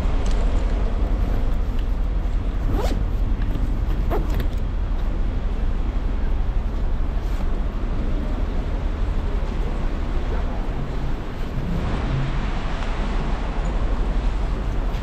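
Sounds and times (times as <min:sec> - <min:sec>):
city traffic rumble: 0:00.0 - 0:15.0
wind on microphone: 0:07.5 - 0:15.0.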